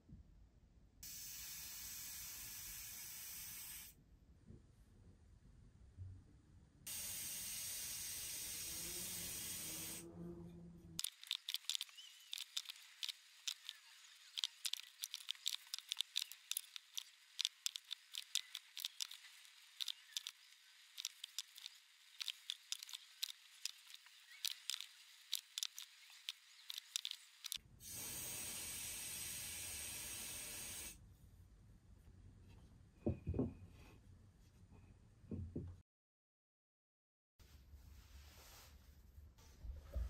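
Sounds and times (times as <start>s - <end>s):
aerosol spray can hissing: 1.0s - 3.9s, 6.9s - 10.0s, 11.0s - 31.0s
brush clicking in plastic cup: 11.0s - 20.4s, 21.0s - 27.6s.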